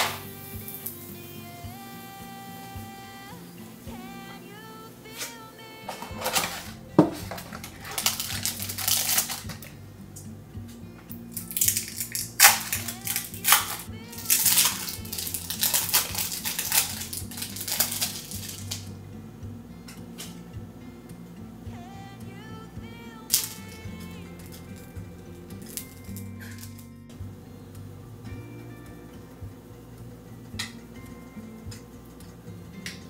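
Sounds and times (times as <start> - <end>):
soft background music: 0.0 - 33.0
plastic wrappers crinkling: 5.1 - 9.8, 11.1 - 18.9, 23.3 - 25.0, 25.6 - 26.9.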